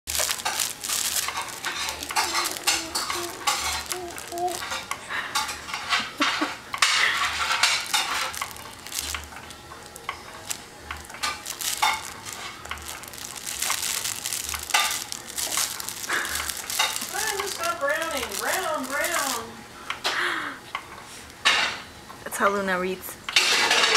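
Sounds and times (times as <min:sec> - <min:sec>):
cloth book pages crinkling: 0:00.0 - 0:04.8, 0:07.0 - 0:19.5.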